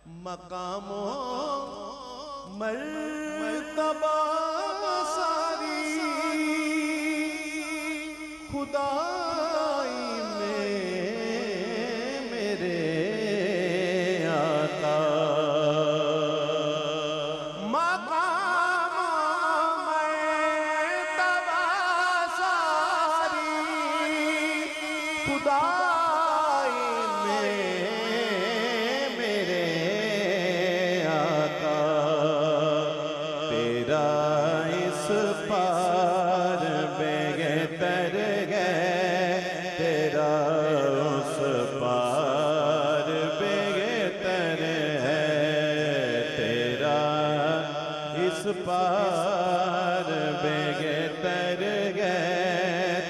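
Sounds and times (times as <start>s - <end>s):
man singing wordless melody: 0.0s - 53.0s.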